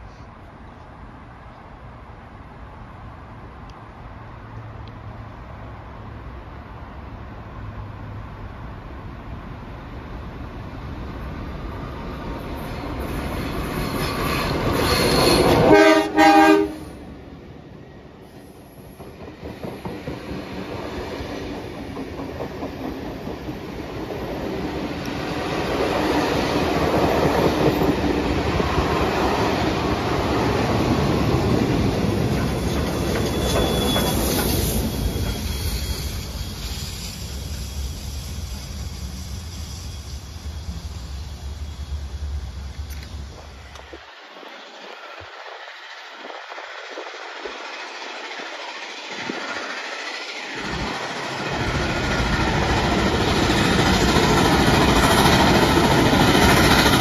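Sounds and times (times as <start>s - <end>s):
diesel locomotive passing: 0.0s - 57.0s
train horn blasts: 15.3s - 17.0s
train wheels clicking over rail joints: 18.8s - 29.0s, 31.4s - 38.0s, 44.9s - 57.0s.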